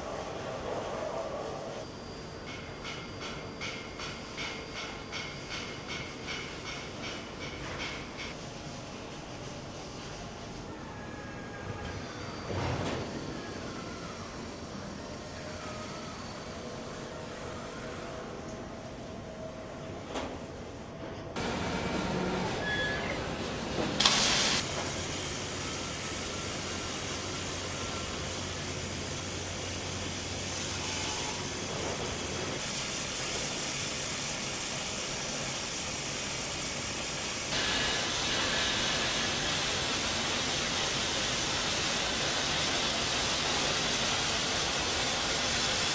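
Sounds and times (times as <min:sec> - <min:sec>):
arc welding hiss: 0:24.0 - 0:45.9.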